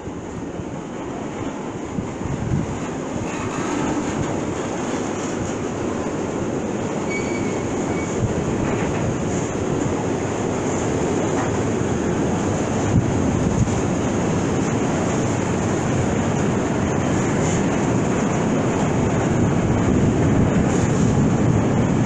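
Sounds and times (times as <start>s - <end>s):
steel wheels rumbling on rail: 0.0s - 22.0s
faint high wheel squeals: 7.0s - 8.2s.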